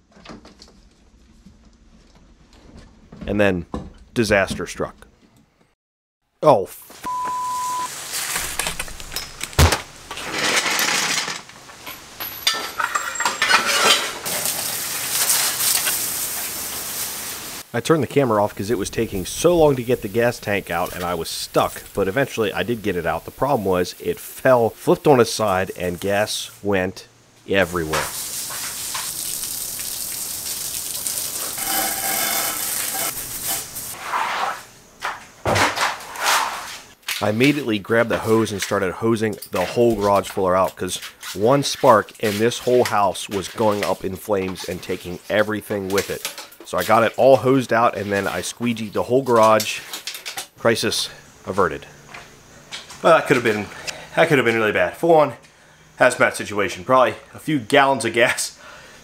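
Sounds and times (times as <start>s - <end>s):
hose spraying water on concrete: 14.2s - 17.7s, 18.5s - 26.4s, 27.6s - 34.0s.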